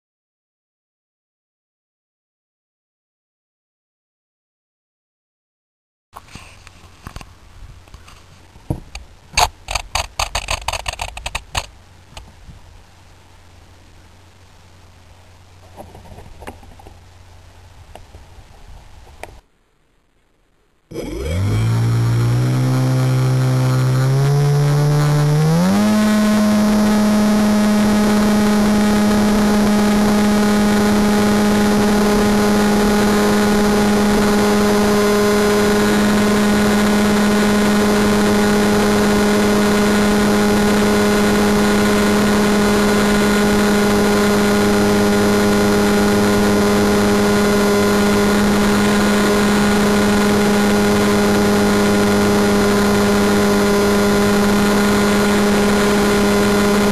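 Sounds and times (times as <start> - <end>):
electric motor and propeller droning: 20.9 - 56.9.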